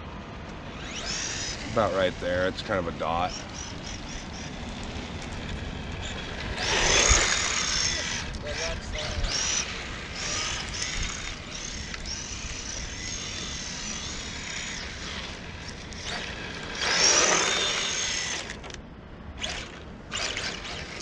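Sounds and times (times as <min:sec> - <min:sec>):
toy car motor whining: 0:00.6 - 0:18.8, 0:19.4 - 0:21.0
tyres sliding on asphalt: 0:00.8 - 0:08.7.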